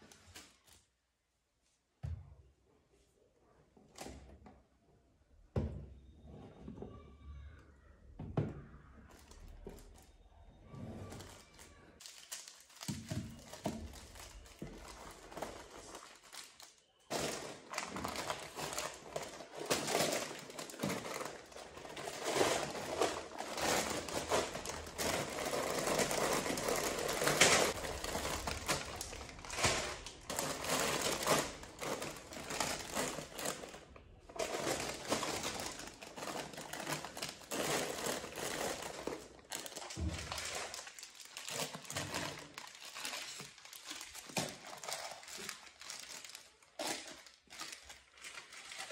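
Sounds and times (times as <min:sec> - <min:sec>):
plastic packets crinkling: 0:11.2 - 0:48.9.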